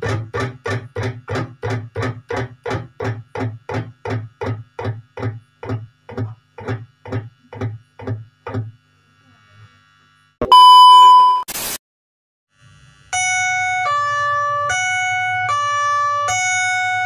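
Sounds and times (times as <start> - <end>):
electric guitar chugging: 0.0 - 8.8.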